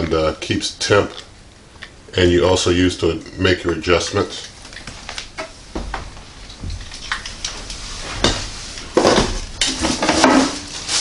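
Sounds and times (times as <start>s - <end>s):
plastic wrapping crinkling: 6.4s - 11.0s
parts knocking and clattering: 9.0s - 10.7s.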